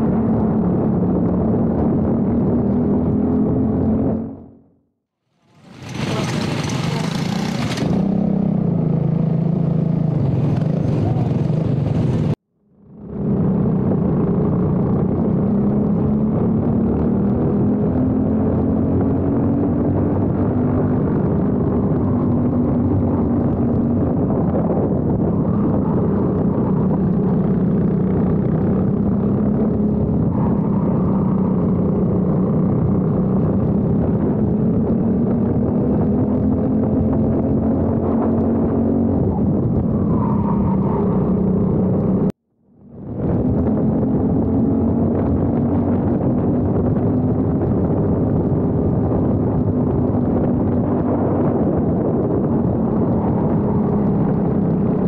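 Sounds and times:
kart engine running under throttle: 5.5 - 8.3.

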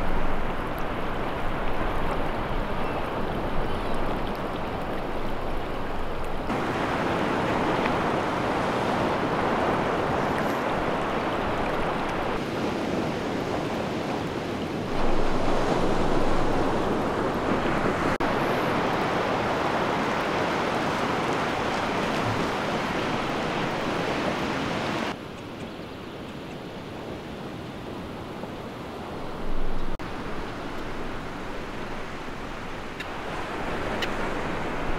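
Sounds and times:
ocean surf on sandy beach: 0.0 - 34.9.

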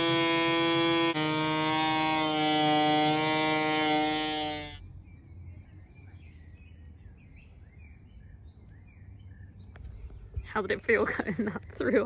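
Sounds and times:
electric cutting tool whining: 0.0 - 4.8
faint birdsong: 4.0 - 12.0.

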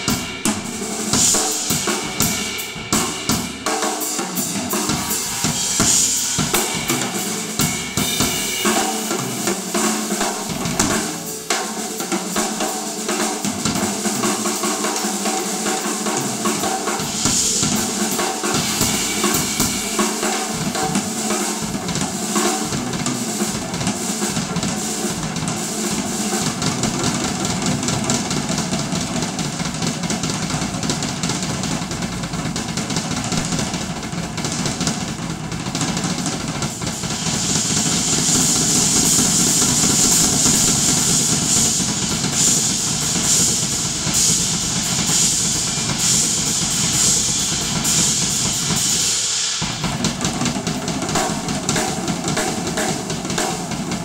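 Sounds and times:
drum kit playing: 0.0 - 54.0
cymbal wash ringing: 17.0 - 21.1.

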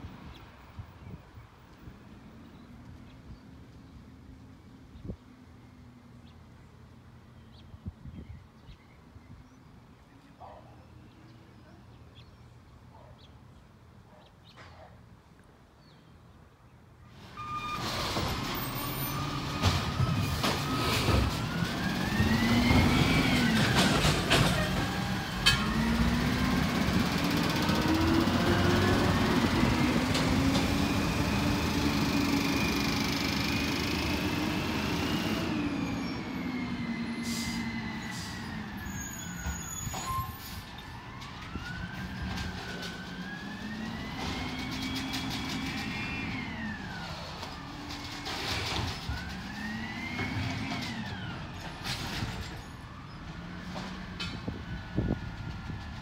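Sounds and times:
garbage truck engine: 17.2 - 56.0.

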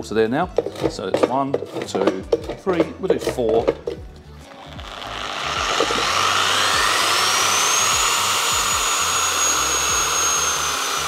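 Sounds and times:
electric polisher motor whine: 4.5 - 11.0.

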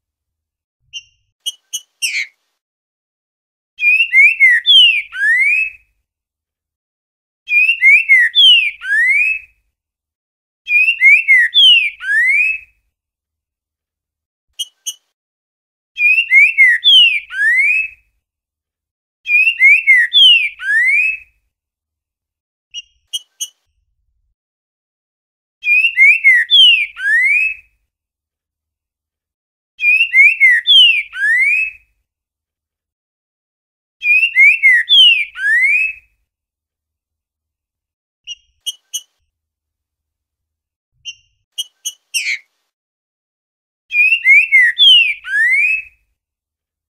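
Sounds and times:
bird singing sliding whistles: 0.9 - 2.4, 3.8 - 5.8, 25.6 - 27.6, 29.8 - 31.8, 34.0 - 36.0, 43.9 - 45.9
short high clipped bird notes: 0.9 - 2.4, 22.7 - 23.7.

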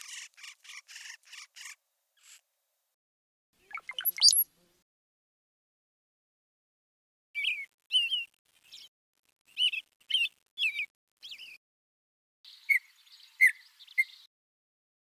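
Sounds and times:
small bird chirping: 0.0 - 2.4, 3.6 - 4.5, 7.4 - 11.6, 12.5 - 14.3.

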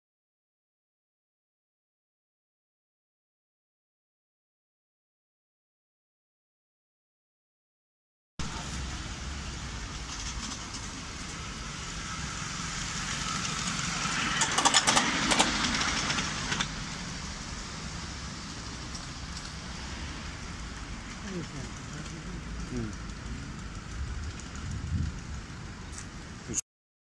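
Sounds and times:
miniature steam locomotive passing: 8.4 - 26.6.

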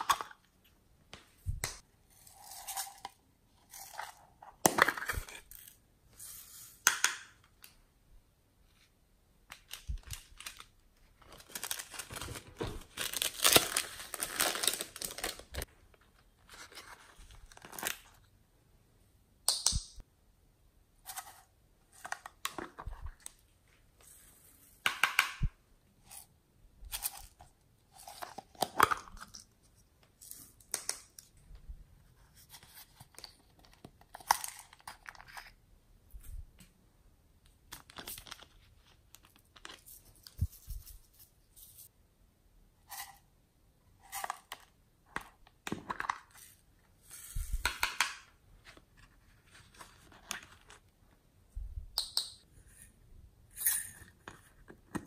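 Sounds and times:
plastic containers crackling: 9.5 - 15.7.

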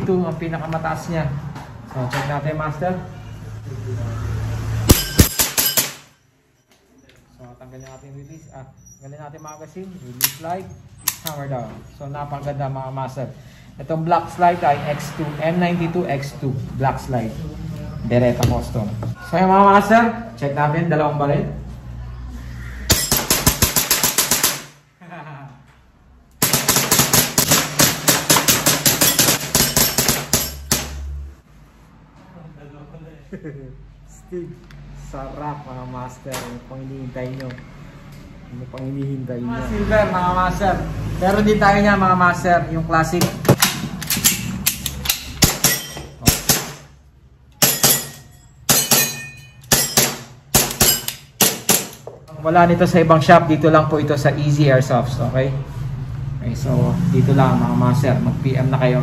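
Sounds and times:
airsoft pistols firing rapidly: 4.9 - 6.0, 22.9 - 24.8, 26.4 - 30.9.

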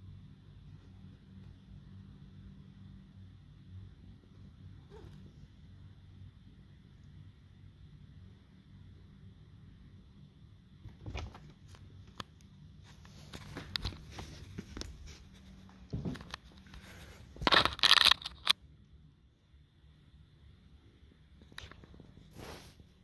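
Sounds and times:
phone rustling against tree branches: 12.8 - 18.6.

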